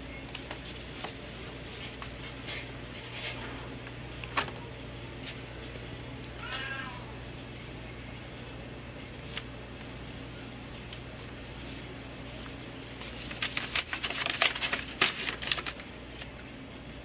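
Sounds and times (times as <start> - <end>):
paper rustling and crinkling: 0.1 - 5.9, 9.2 - 16.5.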